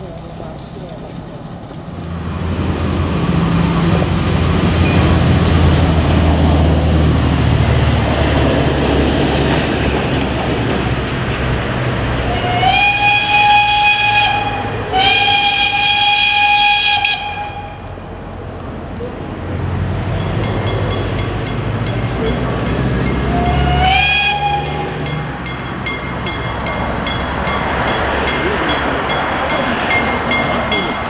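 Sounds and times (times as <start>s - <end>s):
steam locomotive whistle: 12.2s - 17.9s, 23.1s - 25.2s.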